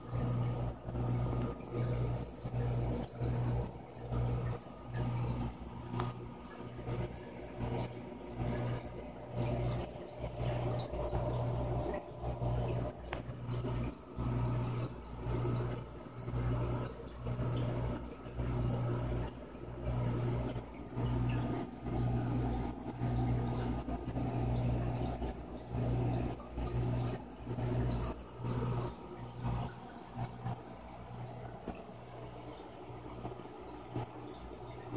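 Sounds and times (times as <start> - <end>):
aquarium pump humming: 0.0 - 34.9
running water: 0.0 - 34.9.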